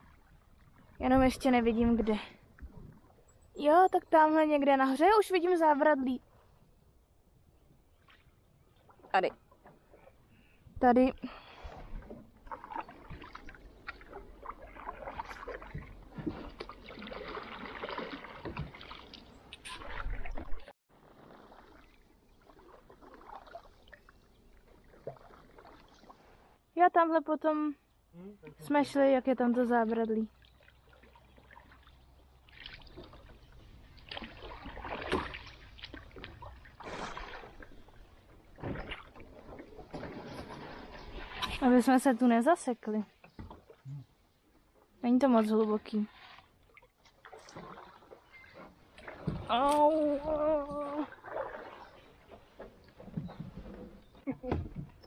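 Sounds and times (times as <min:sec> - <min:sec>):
water sloshing along hull: 0:00.0 - 0:26.8, 0:27.8 - 0:55.0
canoe paddle splashing in water: 0:11.4 - 0:26.6, 0:30.3 - 0:41.9, 0:43.1 - 0:44.9, 0:45.5 - 0:55.0.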